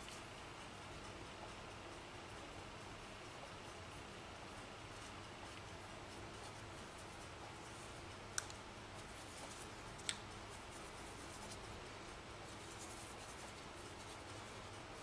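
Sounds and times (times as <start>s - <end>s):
room hum: 0.0s - 15.0s
paintbrush strokes on board: 8.8s - 15.0s.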